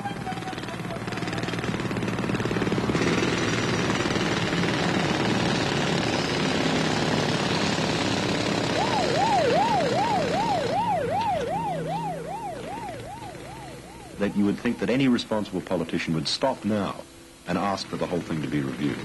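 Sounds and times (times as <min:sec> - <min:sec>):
jackhammer hammering: 0:00.0 - 0:15.5
traffic noise: 0:00.0 - 0:16.2
emergency vehicle siren wailing: 0:08.6 - 0:15.7.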